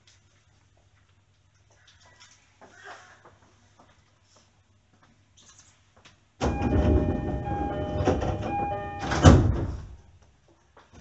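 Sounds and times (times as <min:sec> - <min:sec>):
steady tones: 0:06.4 - 0:09.5
door thump: 0:06.4 - 0:09.9
sliding train doors closing: 0:06.4 - 0:10.0.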